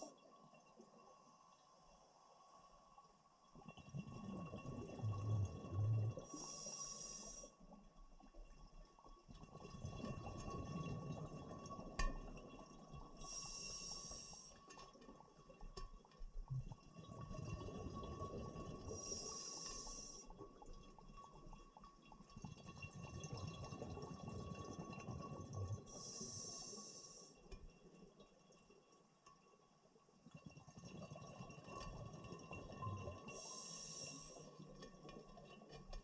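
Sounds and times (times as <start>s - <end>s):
exhaled air bubbling: 3.6s - 7.5s, 9.3s - 27.2s, 30.4s - 36.0s
regulator inhale hiss: 6.3s - 7.5s, 13.2s - 14.6s, 18.9s - 20.3s, 25.9s - 27.4s, 33.3s - 34.6s.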